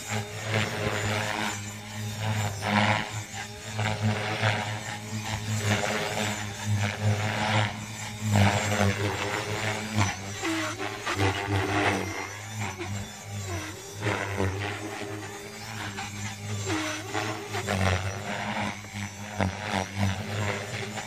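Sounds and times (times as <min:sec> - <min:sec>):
rc helicopter rotor hum and whine: 0:00.0 - 0:21.0.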